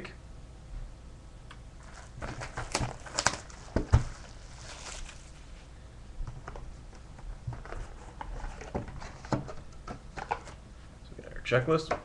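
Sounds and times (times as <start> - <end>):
crinkling: 1.8 - 10.6.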